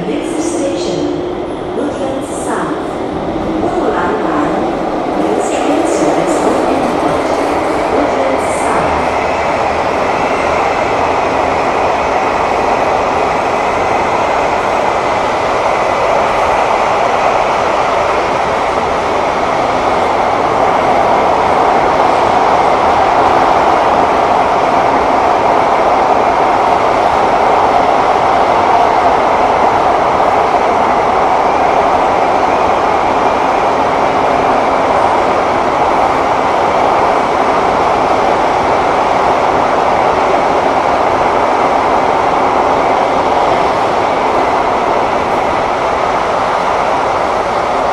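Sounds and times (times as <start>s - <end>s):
train wheels on rail: 0.0s - 47.9s.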